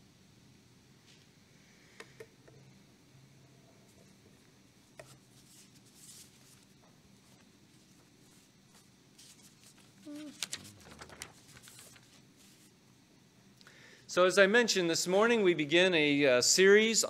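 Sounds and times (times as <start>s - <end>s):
paper rustling: 5.0s - 12.8s.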